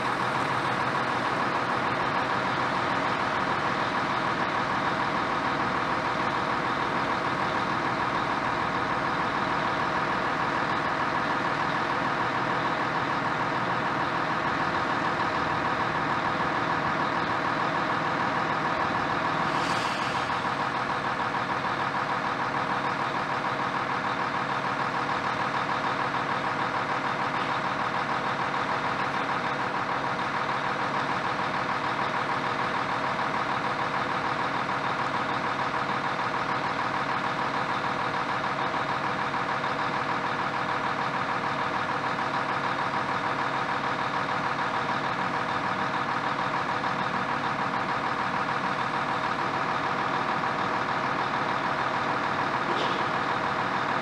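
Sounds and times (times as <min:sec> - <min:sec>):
construction machinery engine drone: 0:00.0 - 0:54.0
faint brief hiss: 0:19.5 - 0:20.3.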